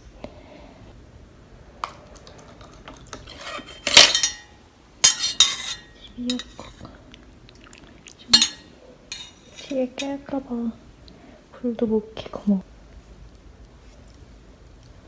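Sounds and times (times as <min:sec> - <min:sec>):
spoon clinking on metal pot: 0:03.8 - 0:06.6, 0:08.3 - 0:10.2
spoon scraping clatter: 0:05.1 - 0:06.6.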